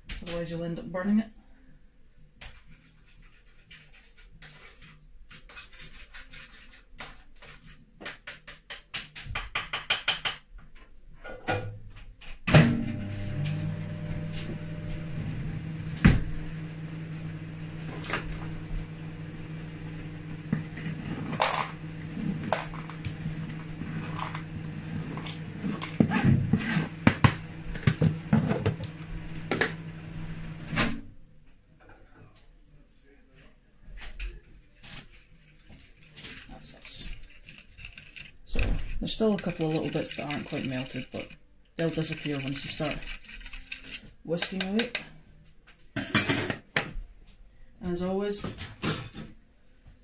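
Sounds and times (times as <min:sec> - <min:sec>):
microwave oven clunk: 0:12.5 - 0:15.0
microwave oven humming: 0:12.5 - 0:31.1.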